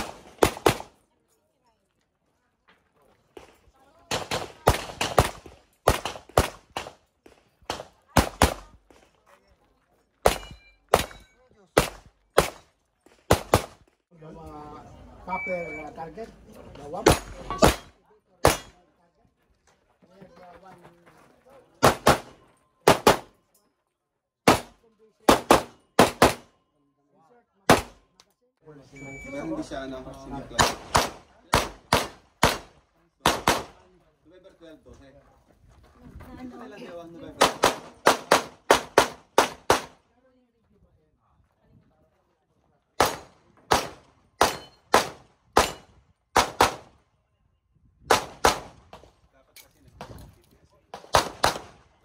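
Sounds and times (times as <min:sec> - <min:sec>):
pistol shots: 0:00.0 - 0:01.0, 0:04.1 - 0:08.7, 0:10.2 - 0:12.7, 0:13.3 - 0:13.8, 0:17.0 - 0:18.8, 0:21.8 - 0:23.4, 0:24.4 - 0:26.5, 0:27.7 - 0:28.0, 0:30.6 - 0:33.8, 0:37.4 - 0:40.0, 0:43.0 - 0:47.0, 0:48.1 - 0:49.1, 0:50.9 - 0:52.0
handgun shots: 0:17.0 - 0:18.8, 0:30.6 - 0:33.7, 0:43.0 - 0:46.9, 0:48.1 - 0:49.1, 0:51.0 - 0:51.8.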